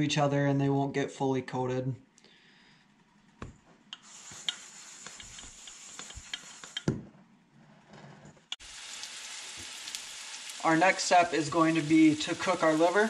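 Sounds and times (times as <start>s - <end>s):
soft rustling in flour: 3.4s - 6.8s.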